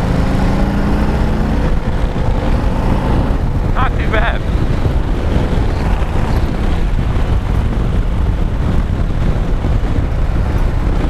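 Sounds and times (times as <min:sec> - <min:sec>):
motorcycle engine running: 0:00.0 - 0:11.0
wind rushing over microphone: 0:00.0 - 0:11.0.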